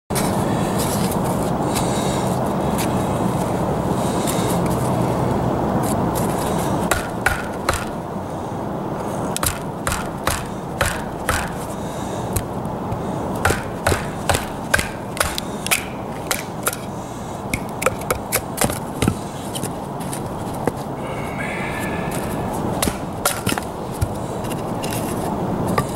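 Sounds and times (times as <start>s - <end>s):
steady background noise: 0.1s - 25.9s
blade knocking on wood: 6.9s - 7.9s, 9.4s - 11.6s, 12.4s - 16.8s.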